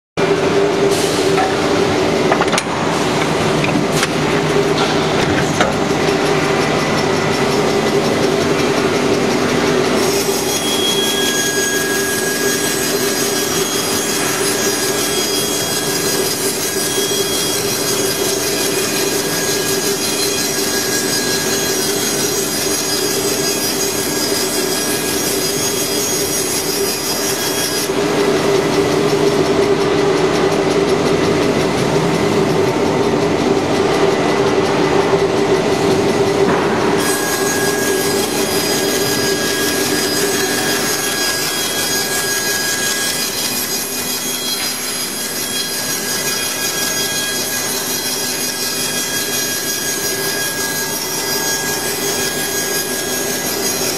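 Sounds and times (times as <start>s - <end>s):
machine whine: 0.2s - 53.9s
cutter cutting wood: 37.0s - 53.9s.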